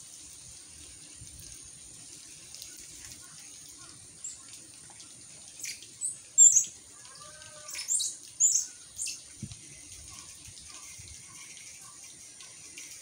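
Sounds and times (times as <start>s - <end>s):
small birds chirping: 2.7s - 12.2s.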